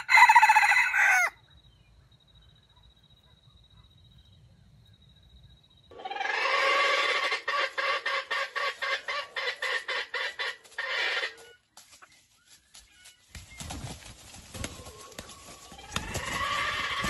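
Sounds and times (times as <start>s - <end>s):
rooster calling and clucking: 0.0s - 1.4s.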